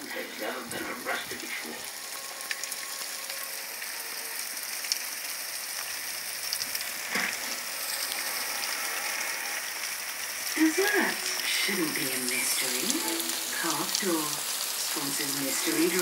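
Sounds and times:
hail pattering on a patio: 0.0 - 16.0.

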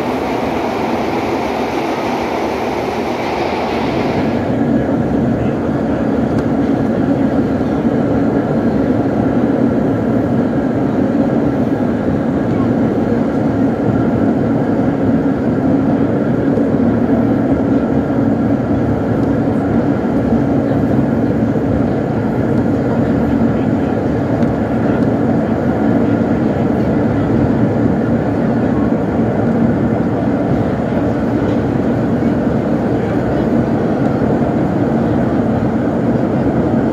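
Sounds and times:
subway train rumbling in tunnel: 0.0 - 36.9.

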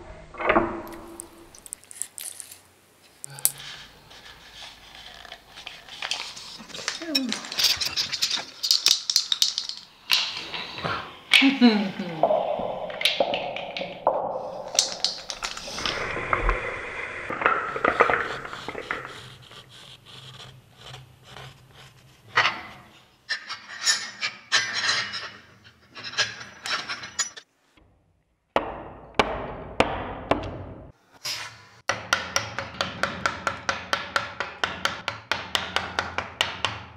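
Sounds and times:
rubbing and scraping wood: 0.9 - 10.8, 14.4 - 24.2
sharp wooden knocks and clicks: 12.7 - 15.8, 31.9 - 36.9.

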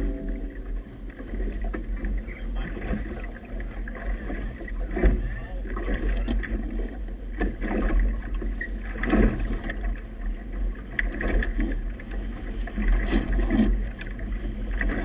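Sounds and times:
waves slapping against hull: 0.0 - 15.0.

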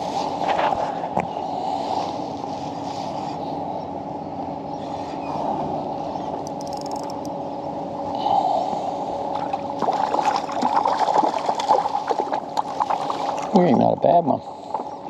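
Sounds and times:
low hum: 0.0 - 15.0
fish splashing in water: 9.4 - 13.6.

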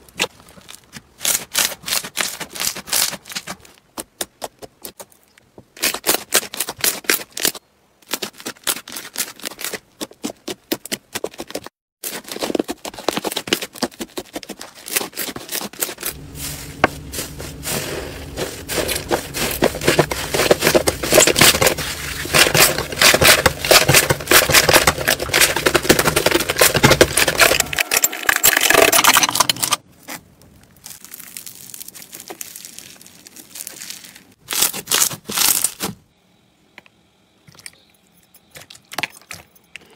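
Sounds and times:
foam bead slime crackling: 30.0 - 35.8.

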